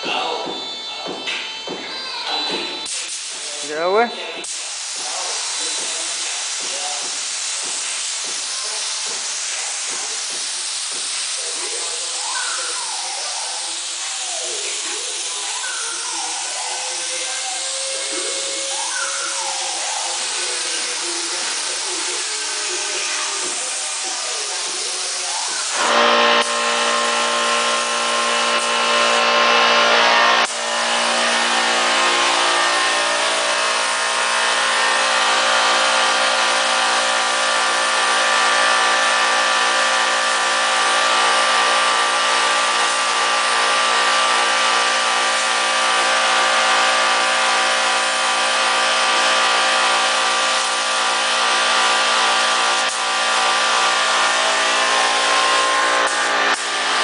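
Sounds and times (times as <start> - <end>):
spray gun air hissing: 2.9 - 29.2, 30.4 - 57.0
machine hum: 25.6 - 57.0.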